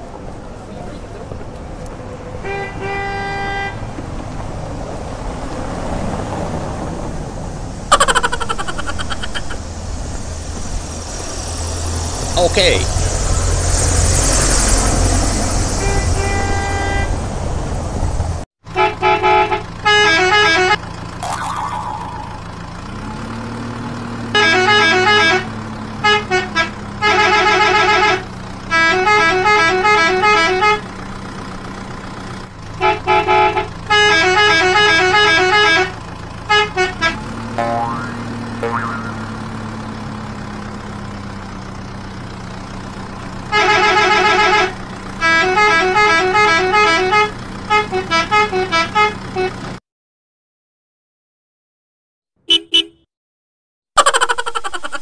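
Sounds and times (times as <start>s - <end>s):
engine drone: 36.3s - 40.8s
warbling vehicle horn: 52.5s - 53.0s.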